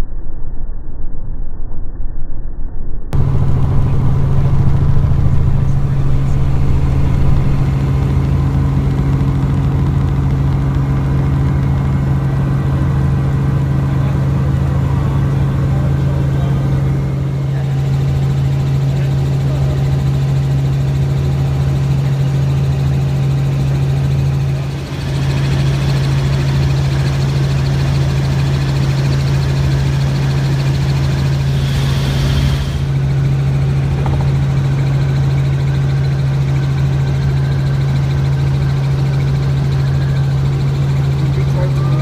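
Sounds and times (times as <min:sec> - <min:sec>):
helicopter engine and rotors drone: 0:03.1 - 0:42.0.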